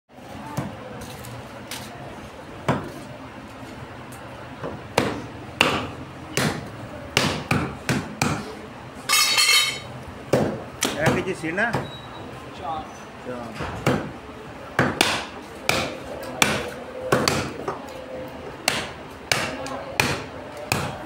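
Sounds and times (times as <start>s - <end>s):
cleavers chopping through ribs: 4.6s - 8.6s, 10.3s - 11.9s, 13.8s - 14.1s, 14.8s - 17.8s, 18.6s - 21.0s.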